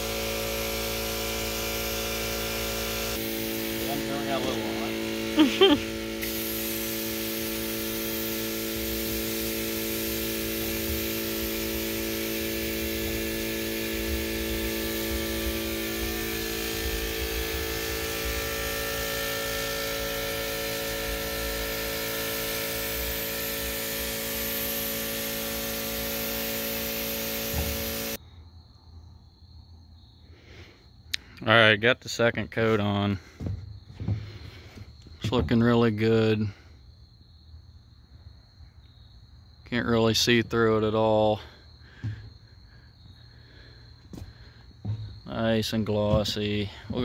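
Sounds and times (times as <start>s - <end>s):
air compressor humming: 0.0s - 28.2s, 32.5s - 36.7s, 39.7s - 47.0s
paint spray gun hissing: 0.0s - 28.2s.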